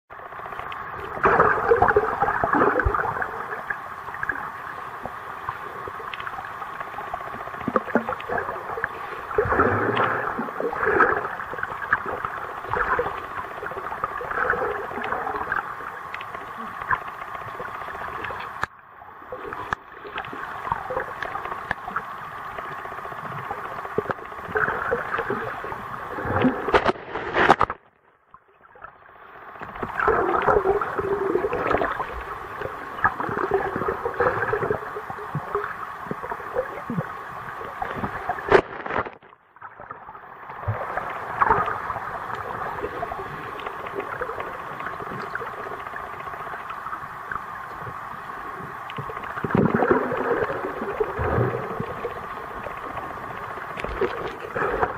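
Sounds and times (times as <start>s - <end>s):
underwater gurgling: 0.1s - 54.9s
small underwater clicks: 0.2s - 18.8s, 19.4s - 28.9s, 29.5s - 39.8s, 40.4s - 54.9s.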